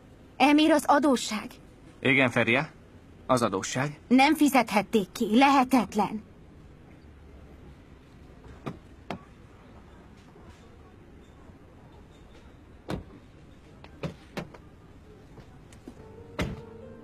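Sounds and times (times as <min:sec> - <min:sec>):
car doors opening and shutting: 0:16.0 - 0:16.9.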